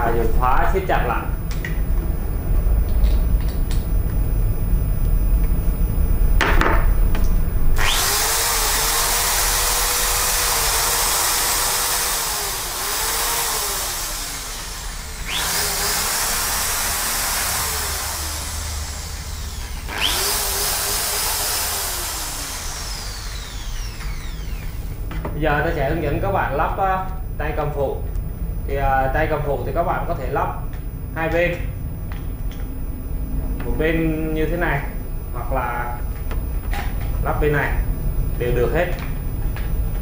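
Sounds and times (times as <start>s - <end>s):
electric drill whining: 7.6s - 25.2s.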